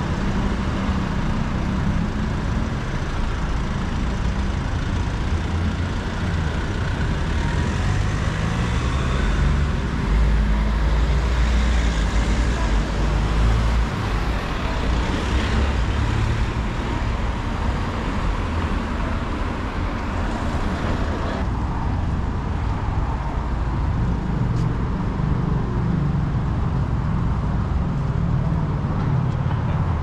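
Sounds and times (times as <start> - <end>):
cars passing on city street: 0.0 - 30.0.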